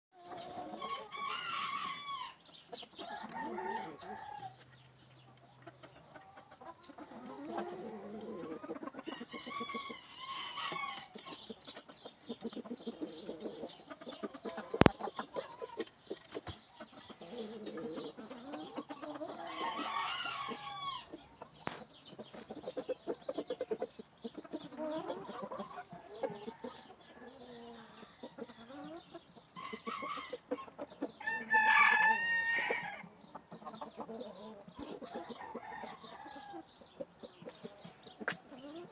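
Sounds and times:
chicken clucking: 0.2s - 38.9s
rooster crowing: 3.0s - 4.6s, 31.2s - 33.0s.

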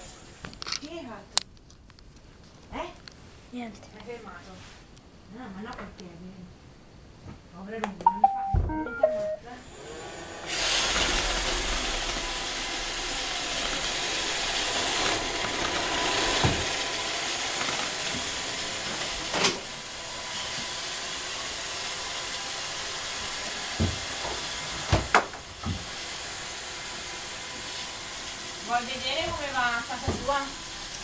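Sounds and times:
robot vacuum whirring: 9.6s - 24.8s.

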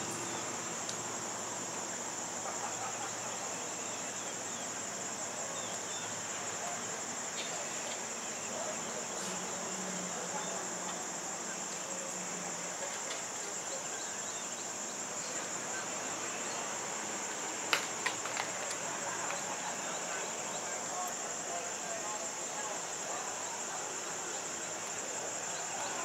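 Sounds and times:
high-pitched insect chorus: 0.0s - 26.0s.

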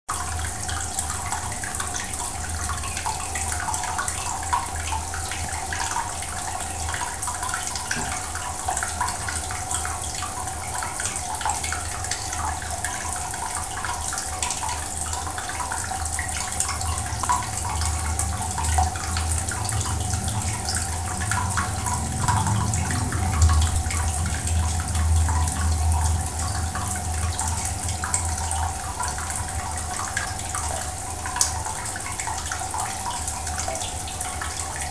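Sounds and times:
aquarium water splashing: 0.1s - 34.9s
low rumble: 17.9s - 29.6s.

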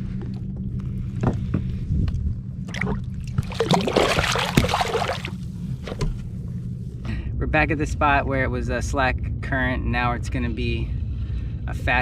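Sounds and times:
steady low hum: 0.0s - 12.0s
water splashing and trickling: 2.7s - 5.5s.

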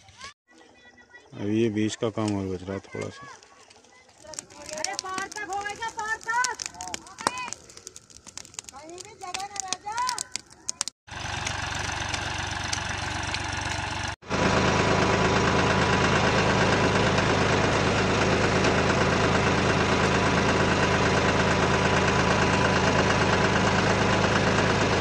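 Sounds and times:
diesel tractor engine running: 11.1s - 25.0s.

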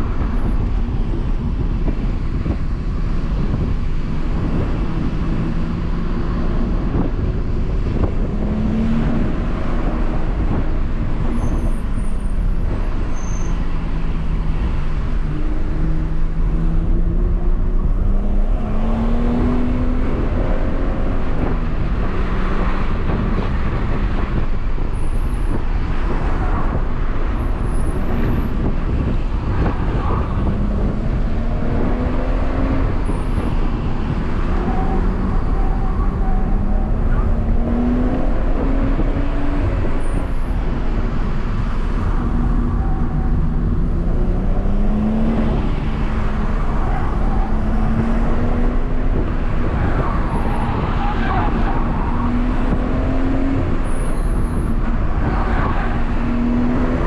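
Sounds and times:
tyre and road noise: 0.0s - 57.0s.

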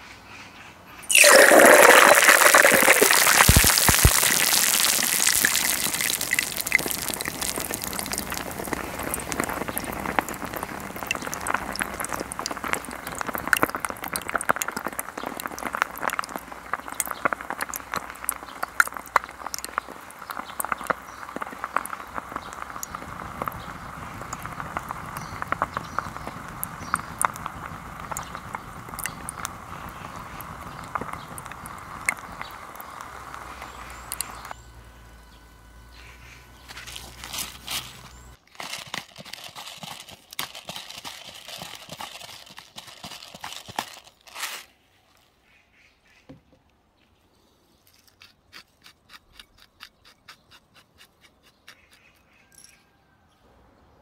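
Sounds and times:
pops and crackles in oil: 1.1s - 34.6s, 35.6s - 44.2s
oil sizzling: 1.1s - 38.4s.

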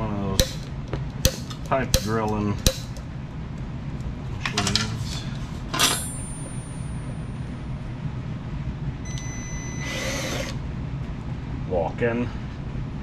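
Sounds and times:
steady low hum: 0.0s - 13.0s
metal tools clanking: 5.7s - 7.2s.

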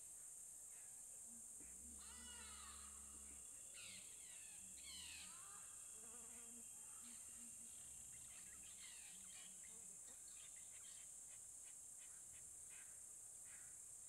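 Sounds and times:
insects droning: 0.0s - 14.0s
bird chirps: 1.7s - 6.0s, 6.8s - 13.8s.

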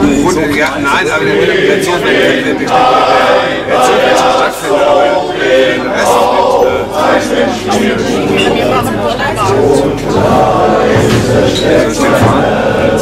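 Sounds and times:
men's choir singing: 0.0s - 13.0s.

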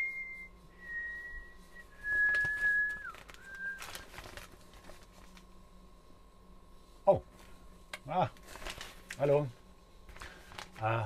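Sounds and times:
man whistling slow tune: 0.0s - 4.1s
newspaper pages rustling: 2.0s - 5.5s, 8.3s - 9.5s, 10.1s - 11.0s.

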